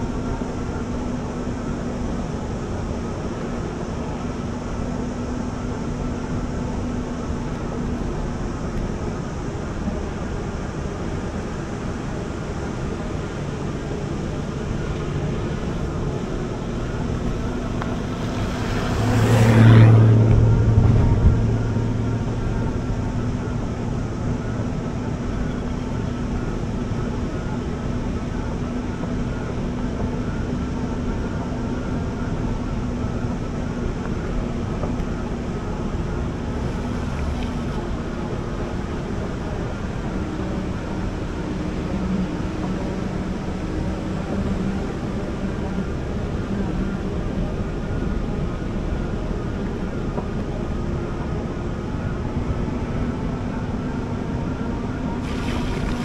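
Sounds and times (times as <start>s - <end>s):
e-bike riding noise: 0.0s - 56.0s
loud rush: 17.0s - 22.0s.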